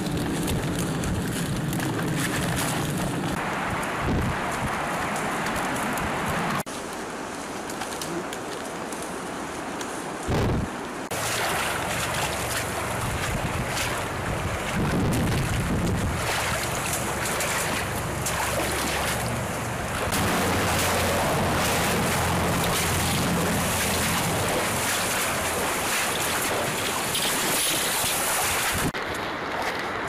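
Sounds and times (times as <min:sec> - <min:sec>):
wind noise on microphone: 0:00.0 - 0:06.6, 0:10.3 - 0:10.7, 0:12.6 - 0:26.9, 0:27.7 - 0:29.1
low hum: 0:11.6 - 0:26.6.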